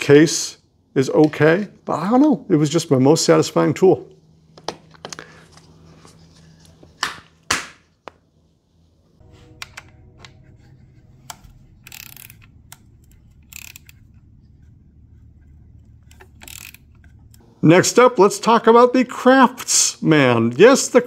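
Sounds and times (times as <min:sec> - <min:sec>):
faint hum: 0:08.1 - 0:18.1.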